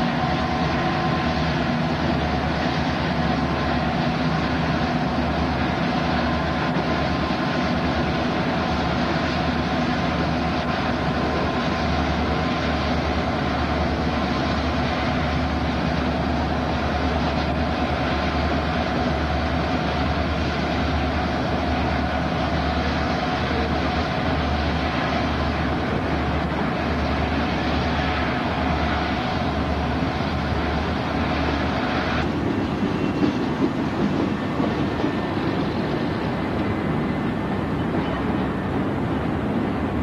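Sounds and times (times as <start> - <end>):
freight train cars rumbling: 0.0 - 40.0.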